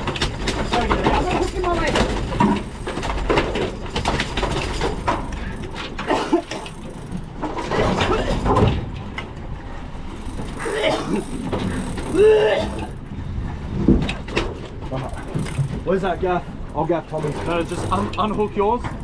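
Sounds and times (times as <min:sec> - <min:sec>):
boat engine running: 0:00.0 - 0:19.0
raised voices: 0:12.1 - 0:13.0.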